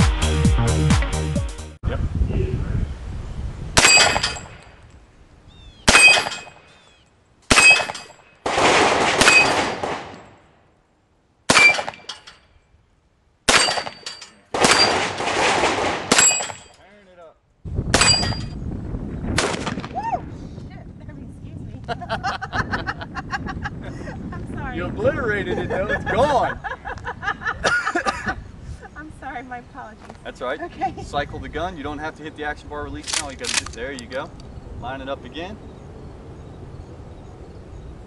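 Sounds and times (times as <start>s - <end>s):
music: 0.0s - 1.8s
bullets clanging on steel targets: 3.8s - 4.6s, 5.9s - 6.7s, 7.5s - 8.3s, 9.2s - 9.8s, 11.5s - 12.6s, 13.5s - 15.2s, 16.1s - 16.8s, 18.0s - 18.6s
gunshots: 3.8s - 4.6s, 5.9s - 6.7s, 7.5s - 10.4s, 11.5s - 12.3s, 13.5s - 16.8s, 17.9s - 18.5s, 19.3s - 20.0s.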